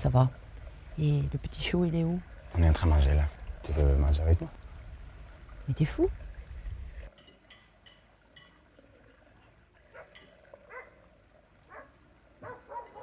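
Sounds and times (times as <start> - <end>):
cutlery and glassware clinking: 7.1 - 8.6.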